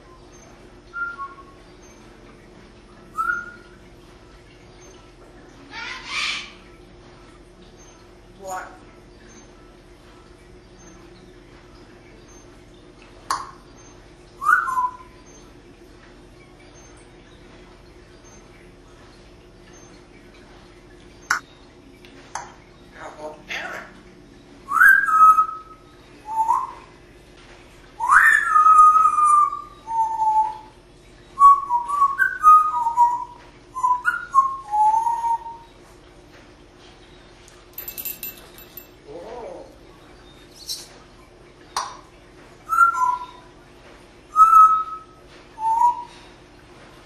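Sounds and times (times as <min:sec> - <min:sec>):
parrot whistling: 0:03.1 - 0:03.7, 0:14.4 - 0:15.1, 0:24.7 - 0:26.8, 0:28.0 - 0:30.7, 0:31.4 - 0:35.6, 0:42.7 - 0:43.4, 0:44.3 - 0:46.1.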